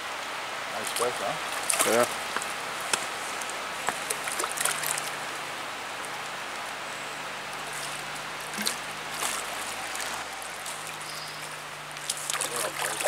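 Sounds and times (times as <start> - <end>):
creek flowing over rocks: 0.0 - 13.0
fish splashing at surface: 1.6 - 2.1, 3.9 - 5.2, 8.4 - 13.0.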